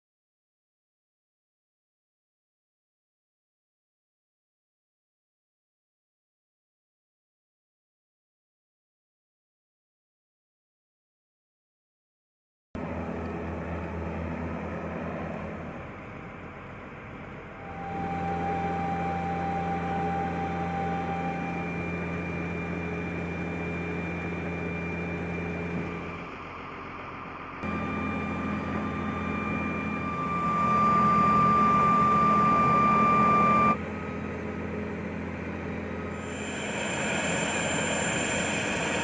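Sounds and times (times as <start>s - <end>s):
high engine whine: 12.8s - 39.0s
turboprop engines droning: 12.8s - 39.0s.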